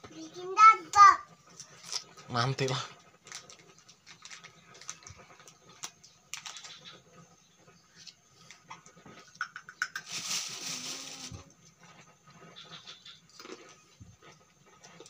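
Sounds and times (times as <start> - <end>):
short rustle: 10.1 - 11.5.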